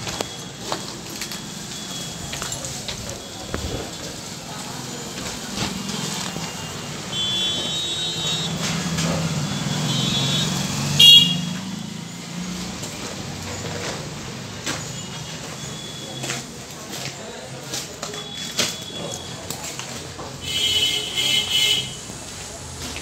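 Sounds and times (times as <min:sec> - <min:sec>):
car horns honking: 0:05.0 - 0:12.1, 0:20.4 - 0:22.1.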